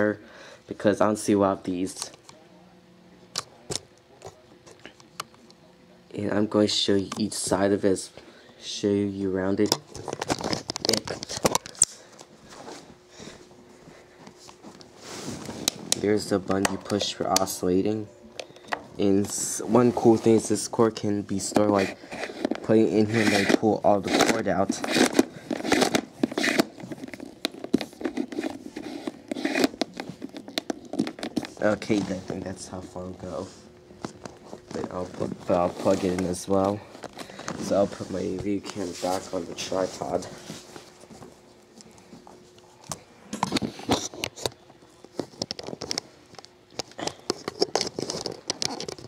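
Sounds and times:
cord scraping against plastic: 0:21.4 - 0:33.5, 0:47.0 - 0:49.0.

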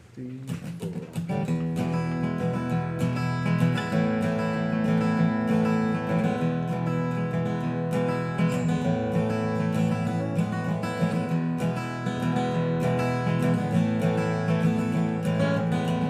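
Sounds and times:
acoustic guitar strumming chords: 0:00.2 - 0:16.0.

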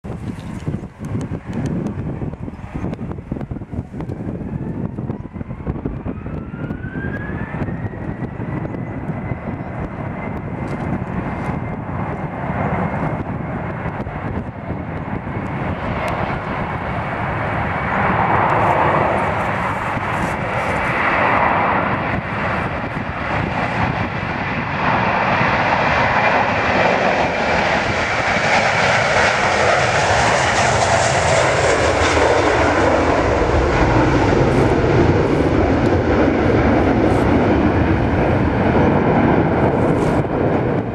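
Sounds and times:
jet engine takeoff roar: 0:00.0 - 0:40.9
jet engines spooling up: 0:14.3 - 0:40.9.

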